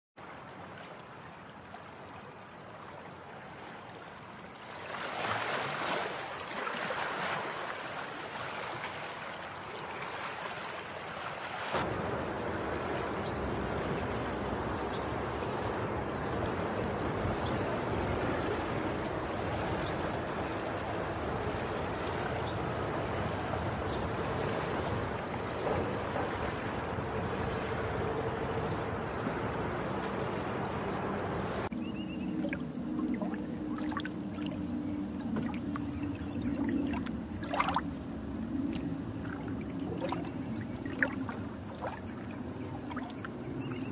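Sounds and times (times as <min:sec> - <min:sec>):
wind: 0:00.2 - 0:43.9
ocean surf washing onto a beach: 0:05.0 - 0:31.7
lapping water: 0:32.3 - 0:37.9, 0:38.6 - 0:43.6.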